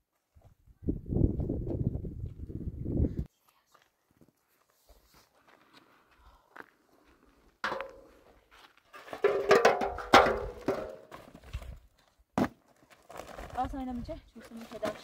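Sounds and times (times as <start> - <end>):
containers knocking: 9.2 - 11.1.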